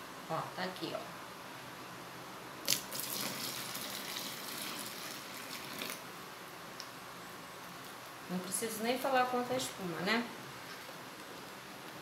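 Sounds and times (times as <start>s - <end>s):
water pouring into liquid: 2.7s - 6.0s.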